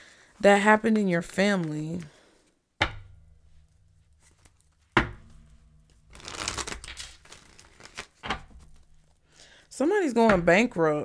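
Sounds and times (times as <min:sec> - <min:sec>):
cards shuffling: 0:04.2 - 0:04.9, 0:05.9 - 0:09.3.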